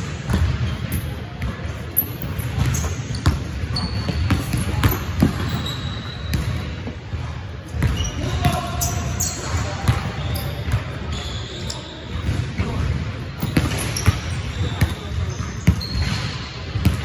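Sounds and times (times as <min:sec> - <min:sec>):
sneaker squeaks: 0:00.3 - 0:17.0.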